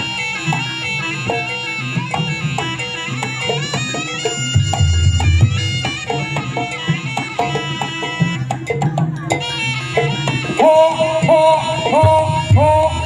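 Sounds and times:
hand drums: 0.0s - 13.0s.

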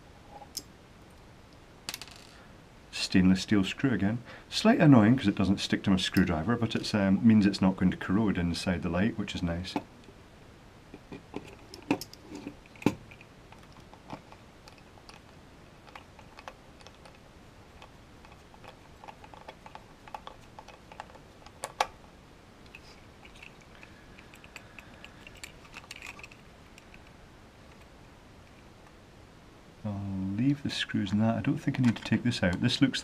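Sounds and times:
plastic parts being handled: 11.0s - 27.9s, 31.6s - 32.6s.

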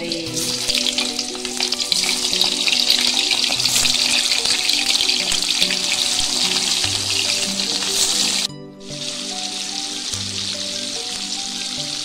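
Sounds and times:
background music: 0.0s - 12.0s
fish deep-frying in hot oil: 0.0s - 12.0s.

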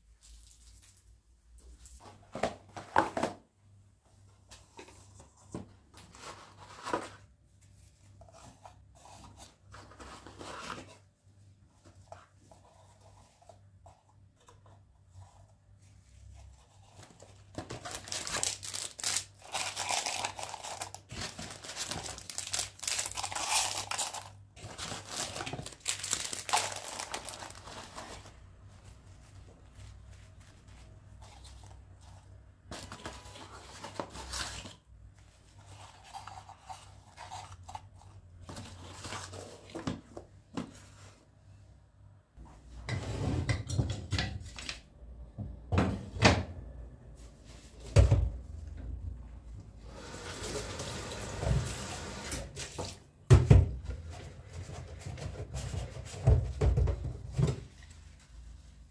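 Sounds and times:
wrapping crinkling and tearing: 0.2s - 1.2s, 17.0s - 28.5s.

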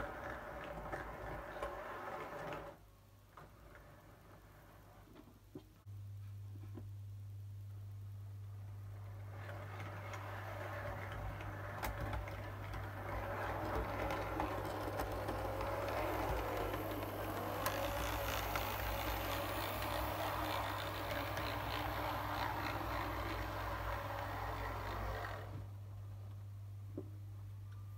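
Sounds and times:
model train wheels ticking over rail joints: 9.9s - 25.5s
small electric motor whining: 13.0s - 25.7s.

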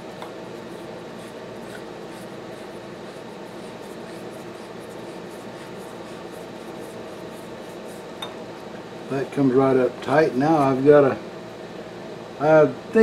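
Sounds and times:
scratchy rubbing on threads: 0.6s - 8.1s.

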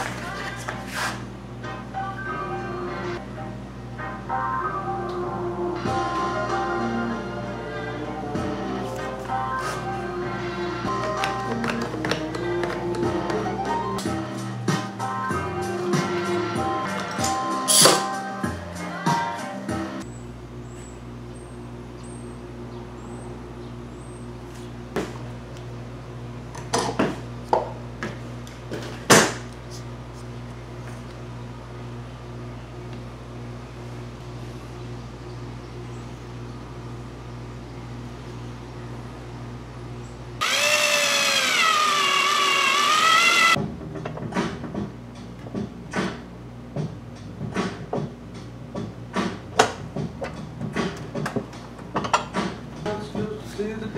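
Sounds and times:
steady low hum: 0.0s - 41.6s
cordless drill whining: 40.4s - 43.6s.

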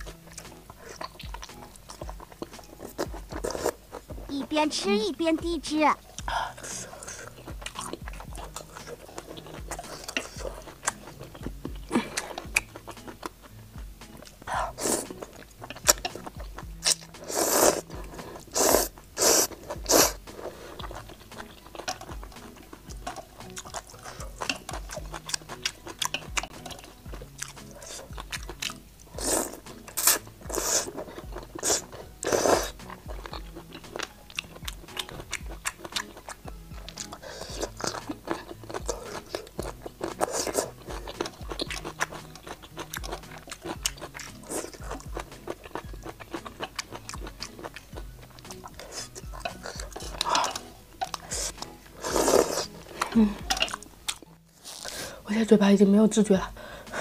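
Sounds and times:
noodles slurped and chewed: 0.0s - 55.2s
quiet background music: 0.0s - 57.0s.

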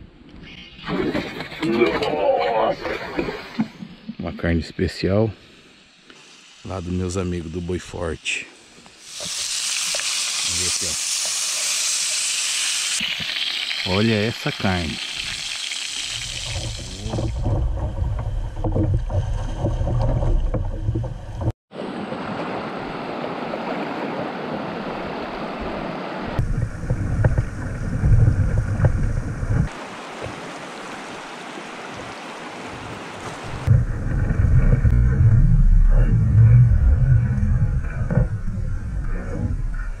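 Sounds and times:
rushing river water: 21.7s - 26.6s, 27.2s - 33.8s
wind buffeting microphone: 24.2s - 29.8s.

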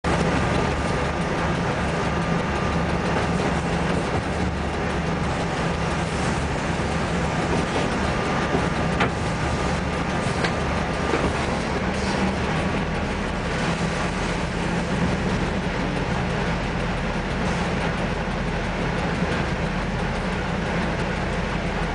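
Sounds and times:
diesel locomotive engine droning: 0.0s - 21.9s.

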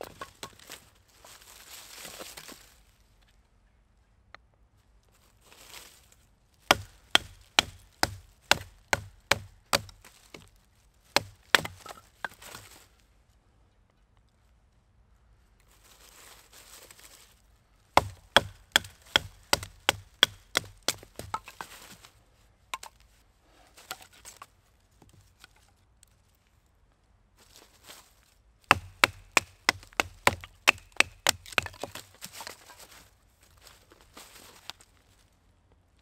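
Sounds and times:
rustling: 0.0s - 3.4s, 5.1s - 8.8s, 15.6s - 26.7s, 27.4s - 28.4s, 29.0s - 35.5s.

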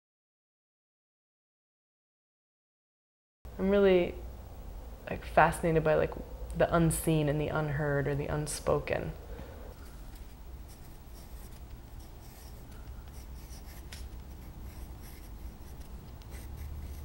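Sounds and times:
low room hum: 3.5s - 17.0s
pencil scratching on paper: 10.2s - 17.0s.

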